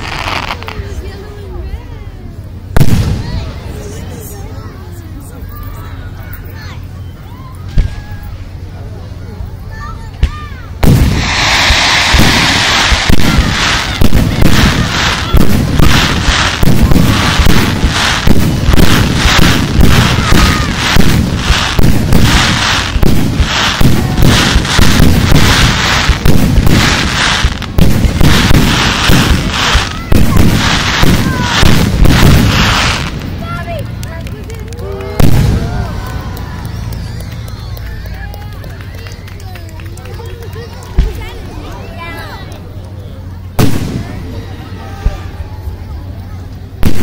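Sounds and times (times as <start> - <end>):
fireworks booming and cracking: 0.0 - 1.4, 2.7 - 4.6, 10.1 - 38.1, 43.6 - 45.4, 46.8 - 47.0.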